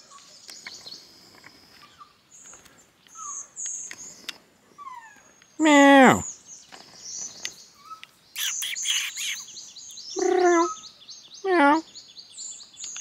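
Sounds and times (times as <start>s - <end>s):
lemur meow calls: 8.4s - 9.4s, 10.2s - 10.8s
short high chirps: 8.4s - 9.5s.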